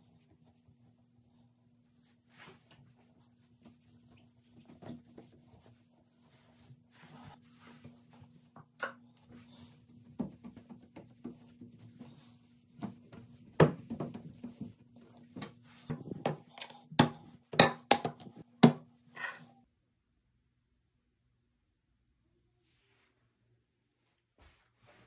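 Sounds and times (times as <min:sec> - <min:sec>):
cloth rubbing on mirror: 0:01.9 - 0:08.5, 0:24.2 - 0:25.0.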